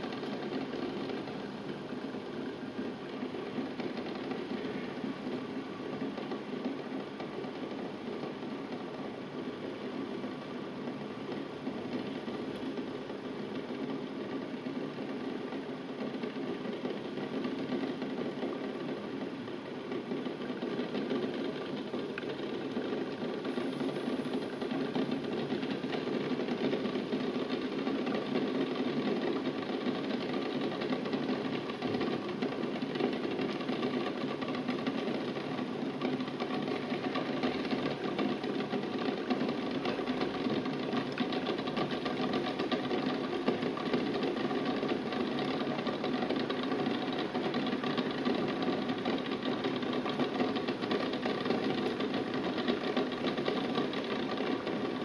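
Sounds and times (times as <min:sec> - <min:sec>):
water boiling in a saucepan: 0:00.0 - 0:55.0.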